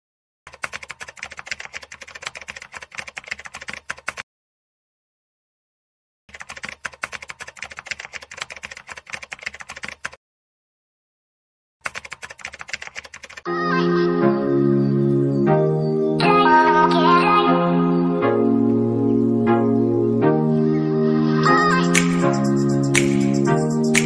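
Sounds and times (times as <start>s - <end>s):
rapid keyboard key clicks: 0.5s - 4.2s, 6.3s - 10.2s, 11.8s - 13.4s.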